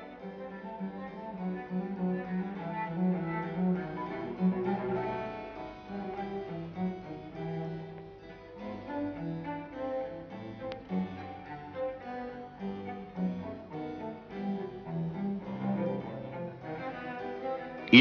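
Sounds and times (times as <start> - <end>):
bowed string music: 0.0 - 18.0.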